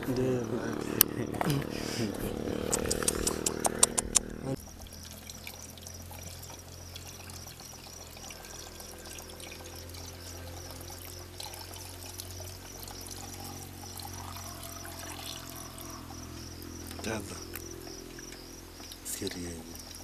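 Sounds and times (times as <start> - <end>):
low hum: 0.0 - 19.8
water pouring from plastic bottle: 4.6 - 16.2.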